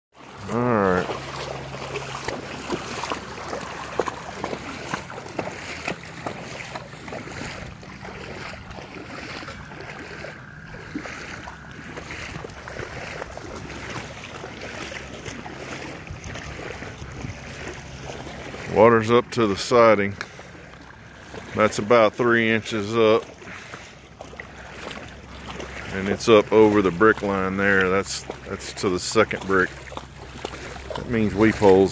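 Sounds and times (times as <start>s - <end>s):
water sloshing and splashing: 0.1s - 31.9s
wind rumbling on microphone: 2.2s - 18.8s.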